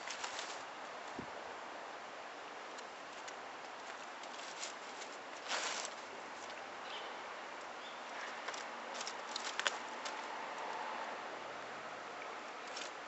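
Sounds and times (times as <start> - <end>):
cat pawing at straw mat: 0.0 - 0.7, 2.8 - 6.6
steady outdoor hiss: 0.0 - 13.0.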